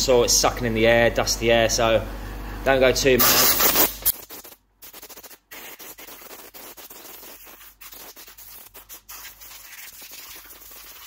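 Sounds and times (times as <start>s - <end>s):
air blow gun hissing: 3.2s - 4.1s.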